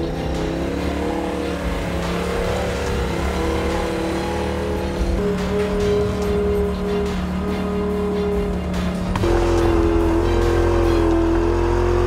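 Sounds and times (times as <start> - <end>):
background music of held chords: 0.0 - 12.0
vehicle engine climbing: 0.0 - 12.0.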